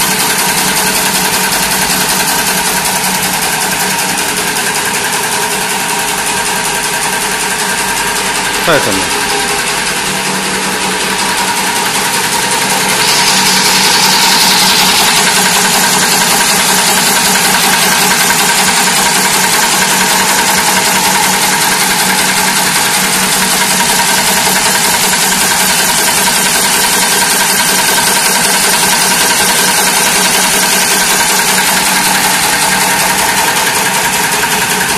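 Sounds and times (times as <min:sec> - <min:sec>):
welding machine mechanical rattle: 0:00.0 - 0:34.9.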